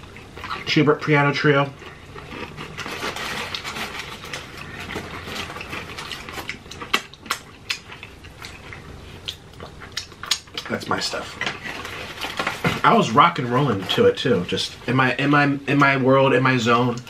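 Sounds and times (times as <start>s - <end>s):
chewing and wet mouth sounds: 0.0s - 12.4s.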